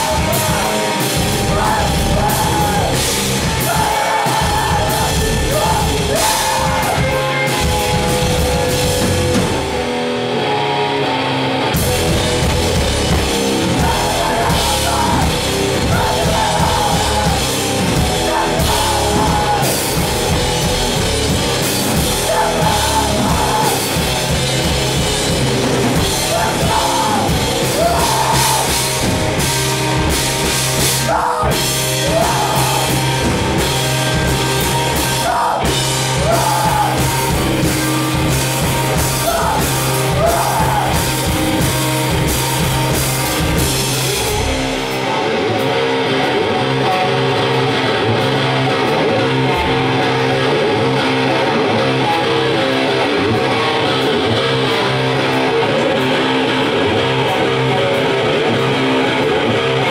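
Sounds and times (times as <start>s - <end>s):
person singing: 0.0s - 9.0s, 13.1s - 20.8s, 21.7s - 24.5s, 25.9s - 29.5s, 30.8s - 41.4s
drum kit: 0.0s - 59.9s
electric guitar: 0.0s - 59.9s.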